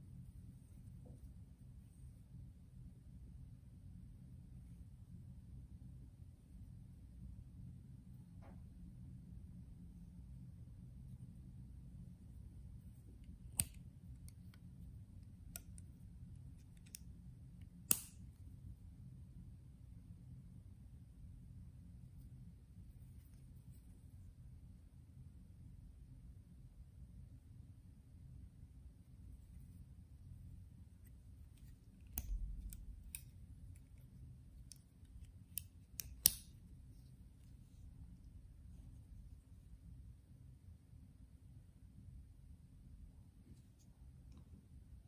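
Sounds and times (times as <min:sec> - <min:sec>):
metallic knife clicks: 0:35.5 - 0:36.6.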